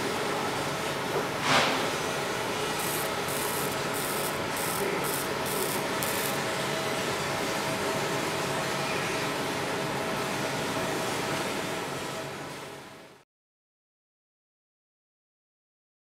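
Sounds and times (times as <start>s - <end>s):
laser marking hissing bursts: 2.7s - 6.4s.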